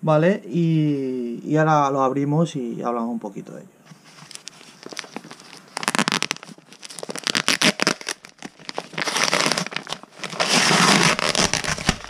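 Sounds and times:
plastic pouch crinkling: 3.9s - 12.0s.

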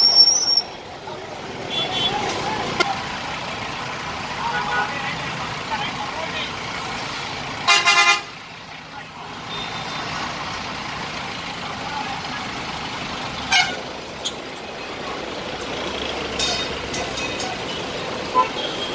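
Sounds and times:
bus engines running: 0.0s - 18.9s
vehicle horn honk: 1.7s - 2.2s, 7.7s - 8.3s, 13.5s - 13.8s, 18.4s - 18.9s.

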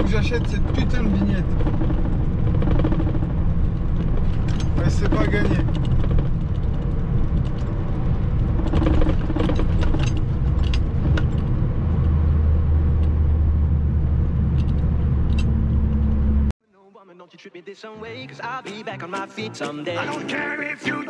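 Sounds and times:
light clicks or rattles: 0.0s - 12.2s, 14.5s - 16.1s
diesel engine drone: 0.0s - 16.5s
road noise: 0.0s - 16.6s.

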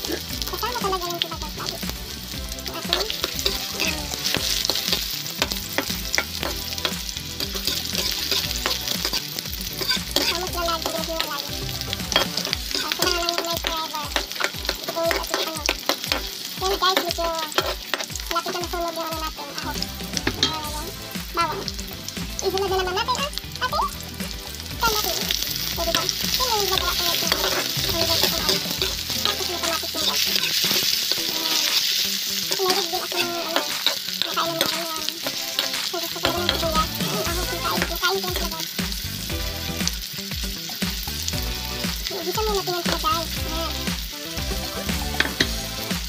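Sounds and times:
garlic and onion sizzling in oil: 0.0s - 46.0s
metal spatula scraping wok: 2.6s - 18.7s, 24.9s - 38.5s.

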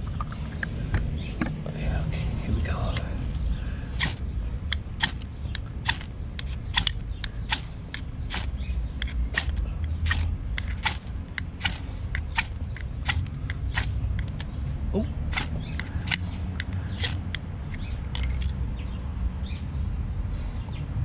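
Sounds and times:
steady low rumble: 0.0s - 21.0s
axe spine scraping ferro rod: 4.0s - 18.5s.

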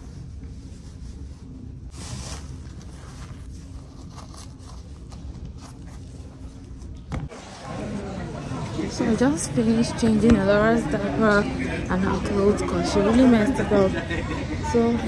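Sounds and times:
clothes and diaper rustling: 0.0s - 7.0s
steady low hum: 0.0s - 15.0s.

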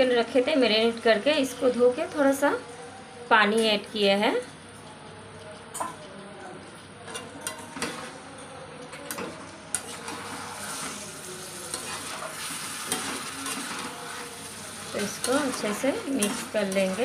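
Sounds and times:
food sizzling in a pot: 9.7s - 17.0s
spatula scraping metal pot: 11.7s - 17.0s.

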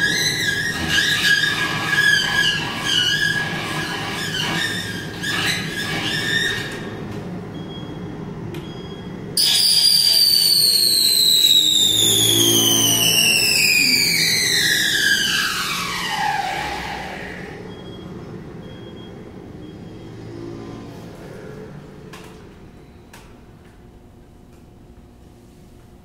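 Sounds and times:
amplified object squealing: 0.0s - 6.9s, 9.4s - 17.8s
whistling tone sliding down: 9.4s - 17.9s.

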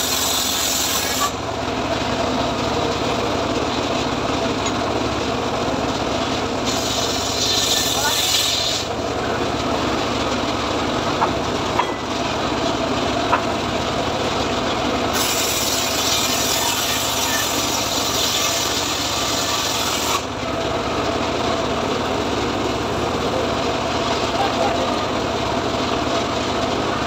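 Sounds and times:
circular saw cutting wood: 0.0s - 1.4s, 6.6s - 9.0s, 15.0s - 20.4s.

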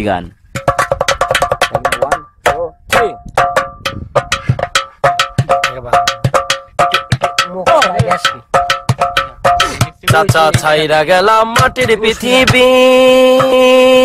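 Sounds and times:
dry knocks: 0.5s - 13.8s
struck metal ringing: 0.6s - 10.3s.

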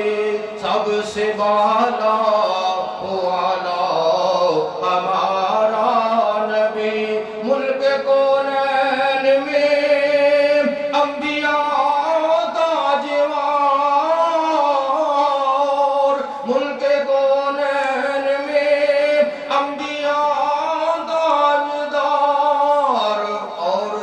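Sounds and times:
man singing into a microphone: 0.0s - 24.0s.

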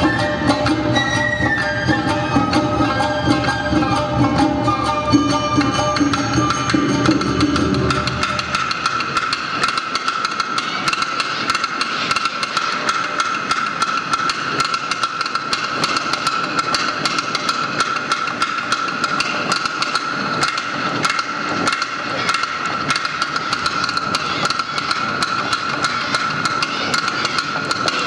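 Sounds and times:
festival band music: 0.0s - 14.7s, 19.8s - 28.0s
hand gong clanging rhythmically: 2.1s - 28.0s.

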